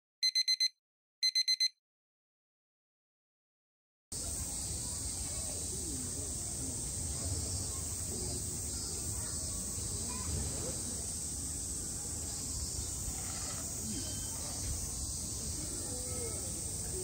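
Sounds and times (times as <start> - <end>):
cicadas droning: 4.2 - 17.0
faint distant voices: 4.2 - 17.0.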